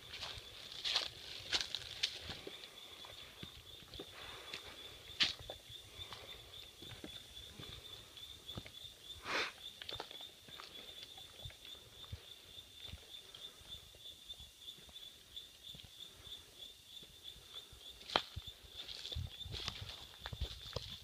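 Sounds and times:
footsteps on dirt path: 0.0 - 13.2, 18.0 - 21.0
insects droning: 0.0 - 21.0.

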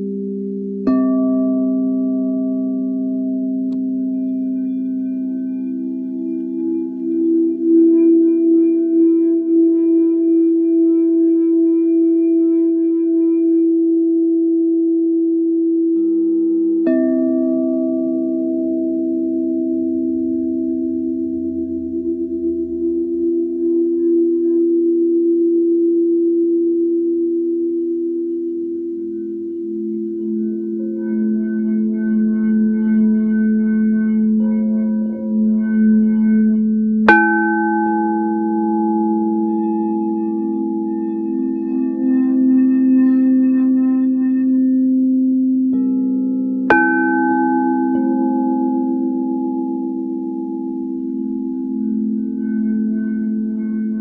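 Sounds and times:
singing bowl steady tone: 0.0 - 54.0
singing bowl struck: 0.8 - 9.7, 16.8 - 23.4, 29.1 - 54.0.

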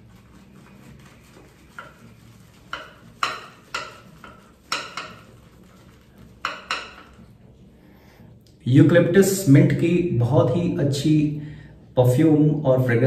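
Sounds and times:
shaving brush swishing lather: 0.0 - 7.4.

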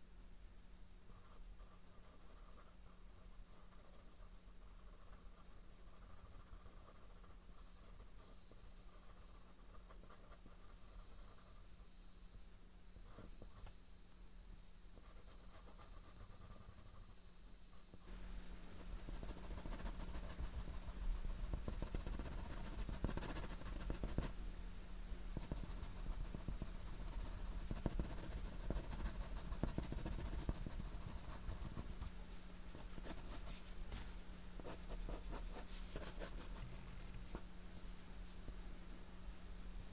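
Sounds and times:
pencil scratching on paper: 1.1 - 11.6, 18.9 - 24.3, 25.4 - 31.9, 32.7 - 38.4.

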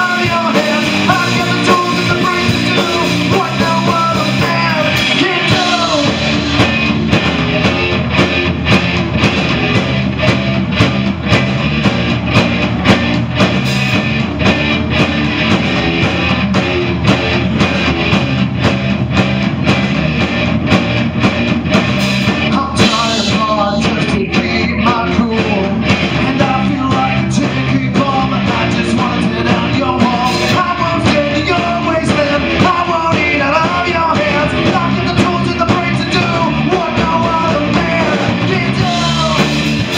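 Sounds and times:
man singing: 0.0 - 6.8, 22.3 - 39.9
bass guitar: 0.0 - 39.9
drum kit: 0.0 - 39.9
electric guitar: 0.0 - 39.9.

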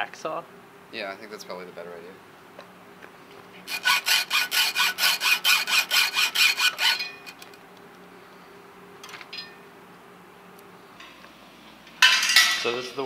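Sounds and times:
hacksaw sawing metal: 3.7 - 7.5.

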